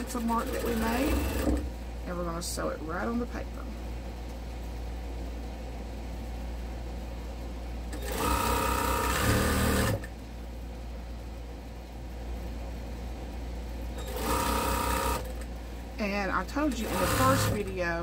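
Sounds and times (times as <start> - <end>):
sewing machine stitching: 0.0 - 1.7, 8.0 - 10.1, 14.0 - 15.4, 16.6 - 17.8.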